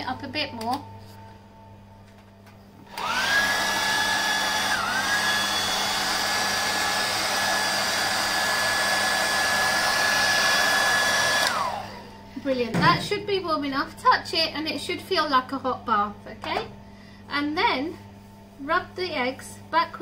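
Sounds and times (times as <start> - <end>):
hairdryer blowing: 2.9 - 12.3.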